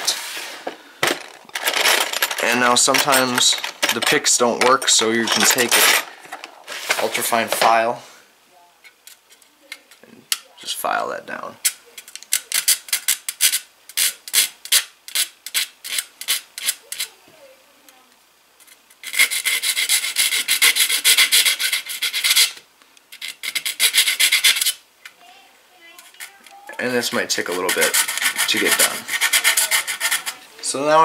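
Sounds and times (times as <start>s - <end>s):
file rasping on metal: 19.0s - 22.6s, 23.2s - 24.8s, 27.1s - 30.4s.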